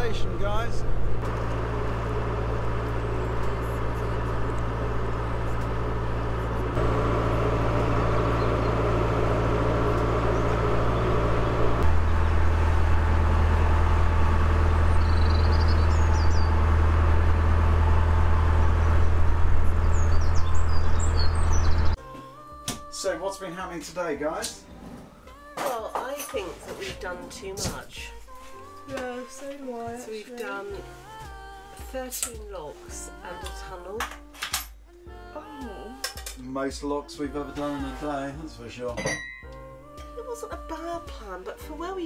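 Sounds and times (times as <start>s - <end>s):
boat engine humming: 0.0s - 22.0s
birds chirping: 7.6s - 12.4s, 14.8s - 16.7s, 18.7s - 22.0s.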